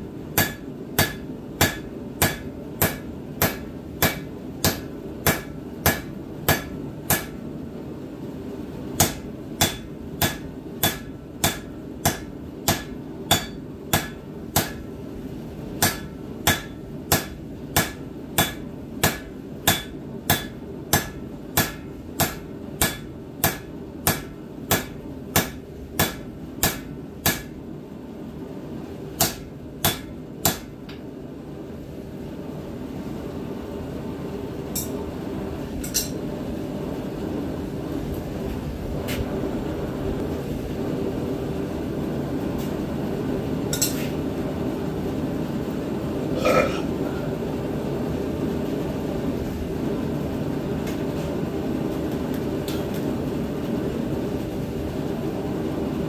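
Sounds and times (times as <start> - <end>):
steady hum: 0.0 - 56.0
hammer striking metal on anvil: 0.3 - 7.4, 9.0 - 14.9, 15.8 - 27.6, 29.2 - 30.8, 34.7 - 35.0, 35.8 - 36.2, 43.7 - 44.0.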